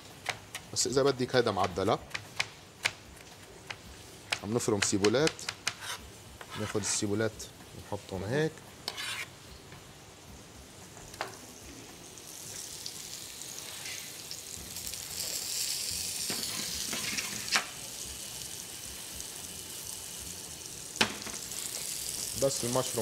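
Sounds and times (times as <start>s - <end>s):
mushrooms sizzling in frying pan: 7.3s - 23.0s.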